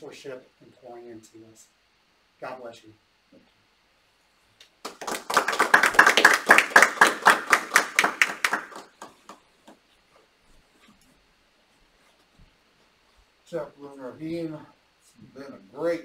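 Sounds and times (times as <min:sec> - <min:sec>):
people clapping: 0:04.6 - 0:09.8.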